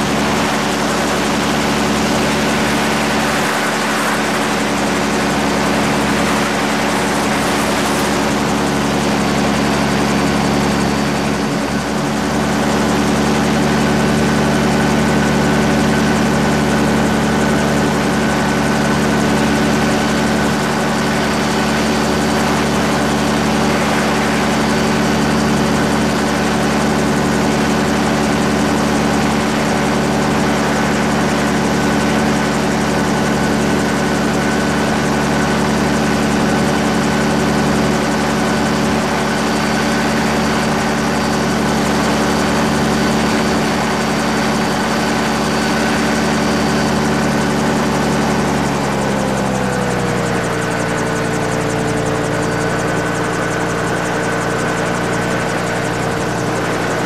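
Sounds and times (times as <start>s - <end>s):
rush of air: 0.0s - 11.4s
gyrocopter engine and propeller drone: 0.0s - 57.0s.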